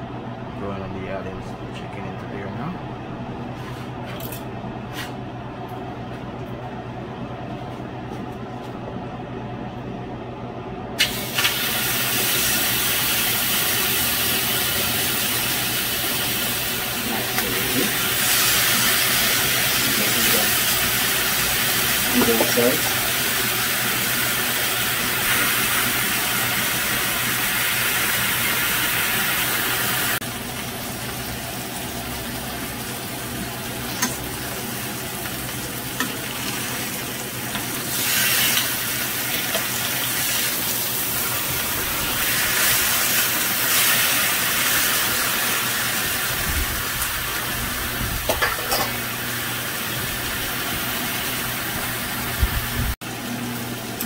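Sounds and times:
chicken sizzling in a grill pan: 0:11.0 - 0:54.0
metal tongs scraping a pan: 0:48.4 - 0:49.0.

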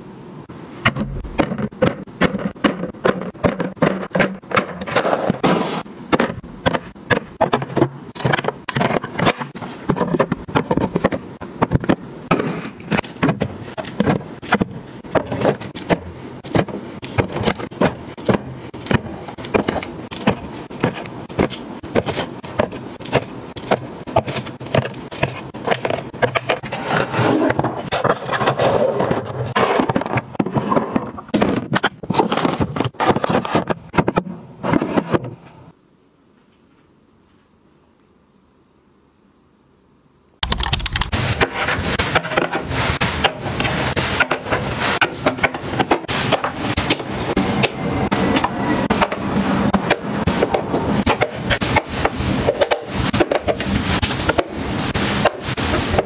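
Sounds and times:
bottles knocking into plastic bins: 0:00.8 - 0:05.4.

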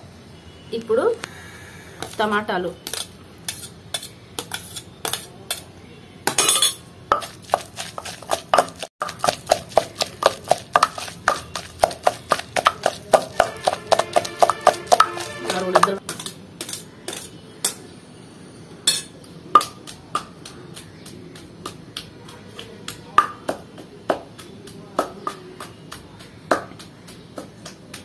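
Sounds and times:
steel spoon scraping steel plate: 0:02.9 - 0:05.6
pestle pounding in stone mortar: 0:07.1 - 0:17.3, 0:19.6 - 0:28.0.

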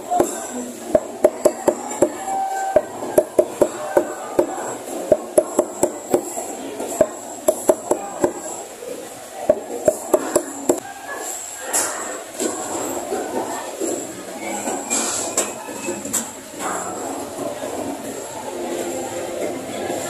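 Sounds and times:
cleaver chopping on wooden block: 0:02.8 - 0:06.3.

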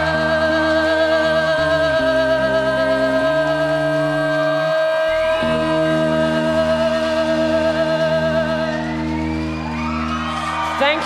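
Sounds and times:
woman singing with vibrato: 0:00.0 - 0:09.2
bass: 0:00.0 - 0:11.0
electric guitars: 0:00.0 - 0:11.0.

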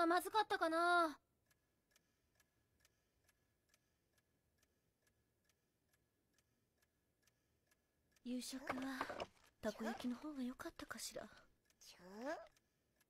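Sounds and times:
clock ticking faintly: 0:00.0 - 0:13.0.

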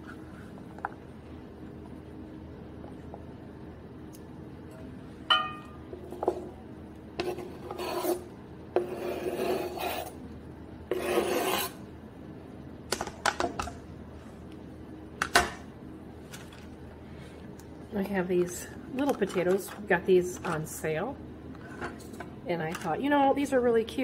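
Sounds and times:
ringing metallic clink: 0:05.3 - 0:05.8
knife scraping cutting board: 0:07.2 - 0:10.2, 0:10.9 - 0:11.8.

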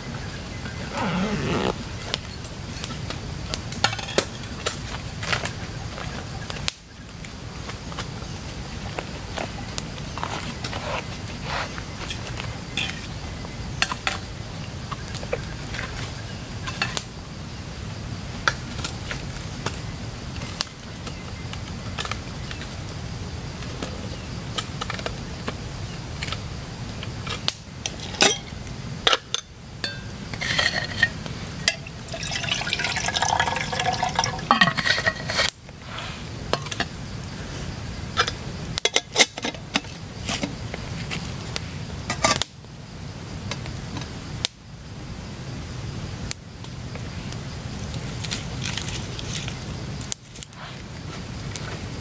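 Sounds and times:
water pouring into metal kettle: 0:31.7 - 0:35.2.

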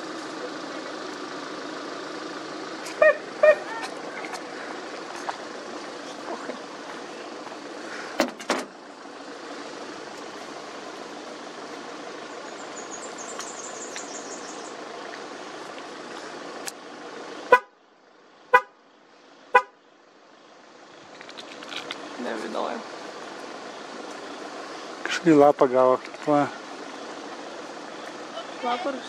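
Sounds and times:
faint high twittering: 0:12.2 - 0:14.8.

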